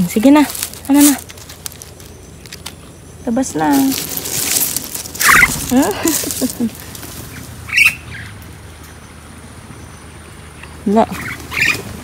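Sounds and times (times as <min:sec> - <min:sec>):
rustle: 0:00.0 - 0:12.0
myna bird squawking: 0:03.1 - 0:08.4, 0:10.6 - 0:12.0.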